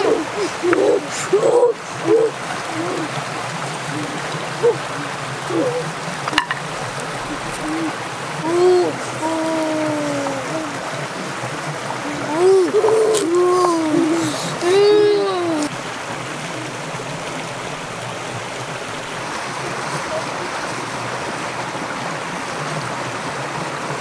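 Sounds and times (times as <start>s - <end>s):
voice-like calls: 0.0s - 17.9s, 19.1s - 22.0s
rocky stream running: 0.0s - 24.0s.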